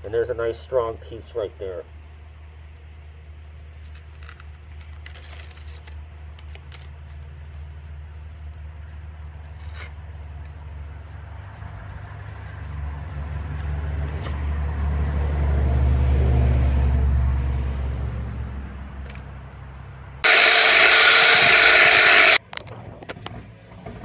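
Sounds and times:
fibreglass mat tearing: 4.3 - 6.9.

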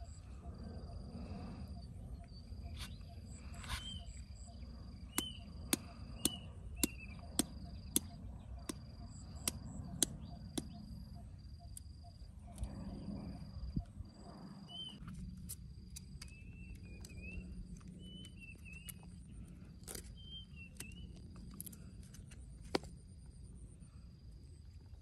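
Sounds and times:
insects trilling: 0.0 - 22.3
low outdoor rumble: 0.0 - 25.0.

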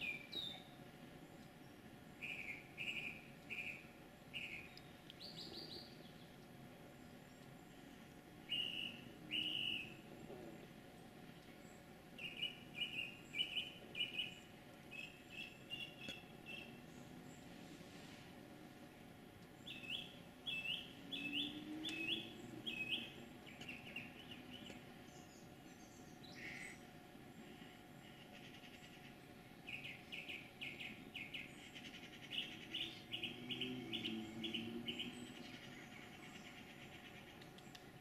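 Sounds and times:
songbird calling high notes: 8.5 - 10.0, 25.8 - 26.8.

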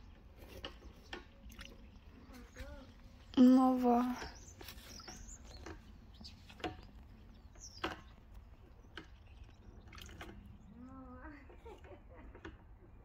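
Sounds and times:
water splashes and drips: 0.1 - 12.5
high bird chirp: 1.0 - 10.9.

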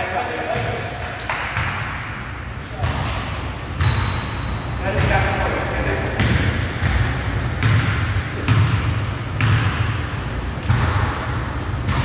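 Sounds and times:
low gym noise: 0.0 - 12.0
basketball bouncing on gym floor: 0.5 - 2.0, 2.8 - 4.2, 6.2 - 10.0, 10.6 - 12.0.

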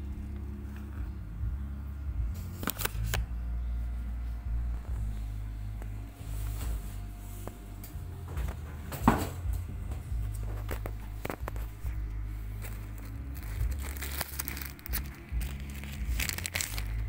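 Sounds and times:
low steady hum: 0.0 - 17.0
plastic bag rustling and crinkling: 10.3 - 17.0.

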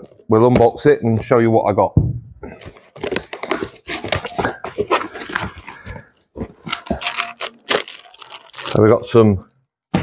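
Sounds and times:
cardboard scraping and tearing: 2.6 - 5.8, 6.5 - 8.9.

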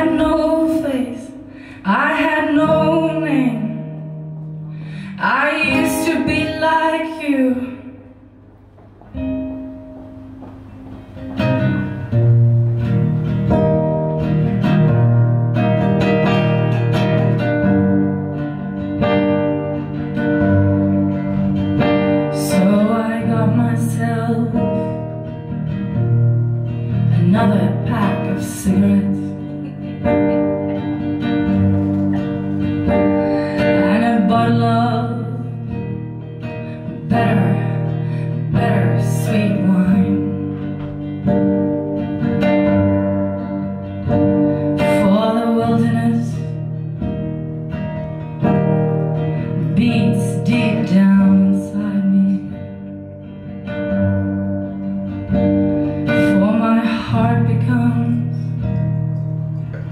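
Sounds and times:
woman singing: 0.0 - 4.2, 5.1 - 8.0, 22.2 - 25.2, 26.9 - 30.2, 32.8 - 41.0, 44.7 - 46.8, 49.4 - 52.9, 56.0 - 58.9
acoustic guitar: 0.0 - 59.9.

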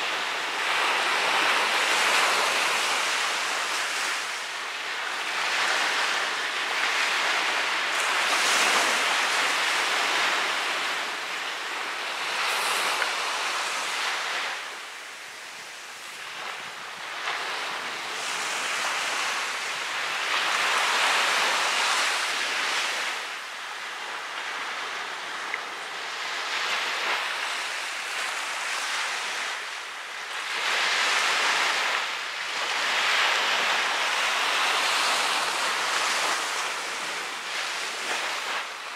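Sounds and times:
ocean surf breaking: 0.0 - 38.9.

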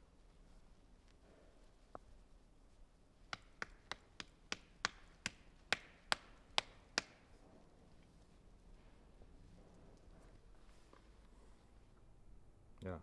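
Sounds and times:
sharp taps: 3.3 - 7.3.

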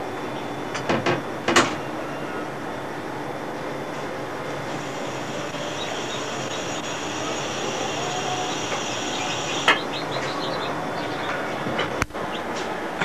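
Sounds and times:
steady machine noise: 0.0 - 13.0
chicks peeping: 4.8 - 12.6.

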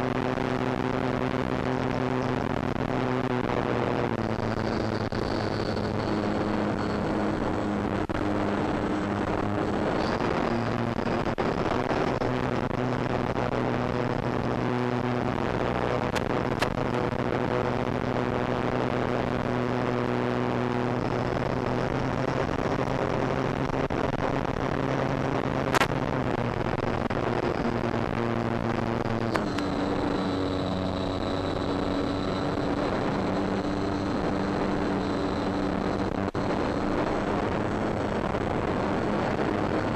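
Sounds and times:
electric motor and propeller drone: 29.2 - 39.1.

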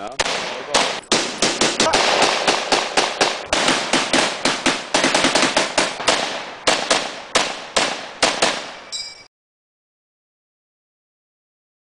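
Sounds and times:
rifles firing blank shots: 0.2 - 8.9.

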